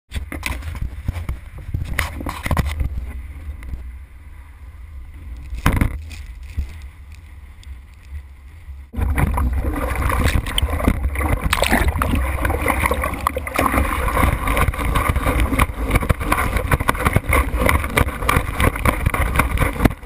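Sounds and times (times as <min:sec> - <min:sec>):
wind buffeting microphone: 0:00.2 - 0:20.0
rushing water: 0:09.0 - 0:20.0.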